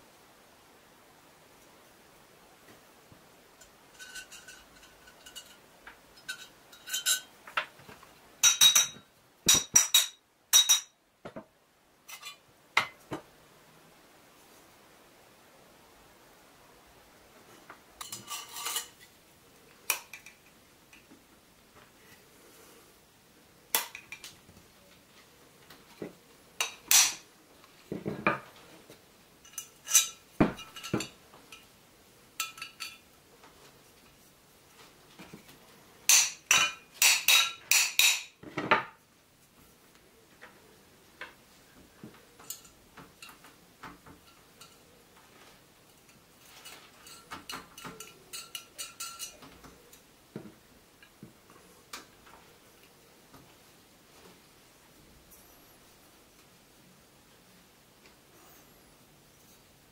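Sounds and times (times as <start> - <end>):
steel tubes clinking and knocking: 3.6 - 5.6, 6.2 - 7.7, 8.4 - 11.0.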